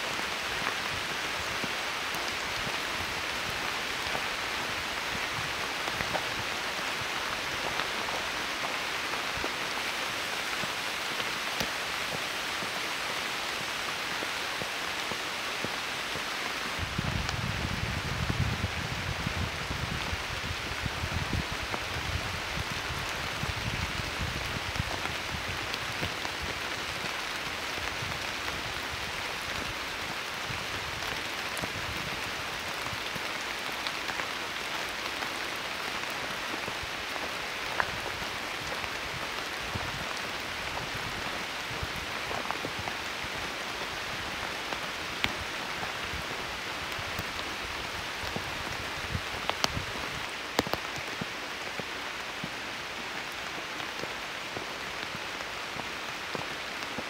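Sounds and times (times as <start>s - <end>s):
rain on leaves: 0.0s - 57.0s.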